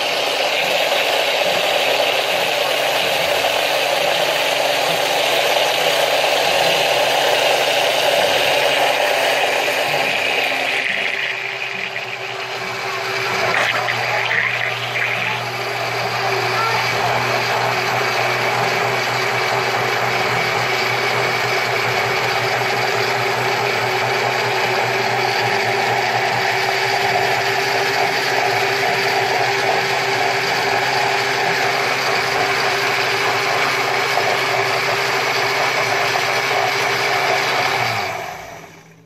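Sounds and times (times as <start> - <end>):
blender motor running: 0.0 - 39.0.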